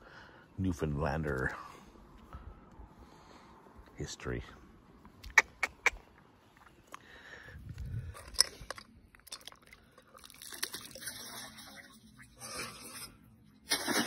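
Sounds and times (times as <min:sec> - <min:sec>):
shells pattering onto water: 0:08.2 - 0:11.9.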